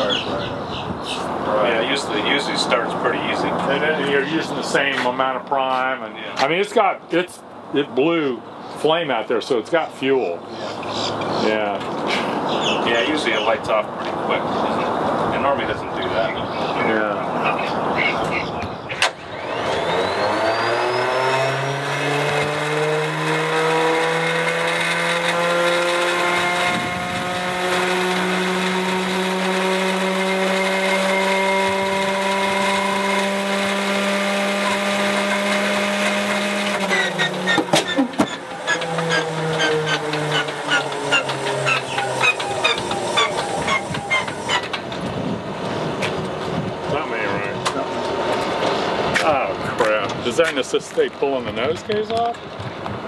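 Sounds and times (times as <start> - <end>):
engine starter whine: 18.9 - 45.2
engine clattering pops and knocks: 36.7 - 39.1.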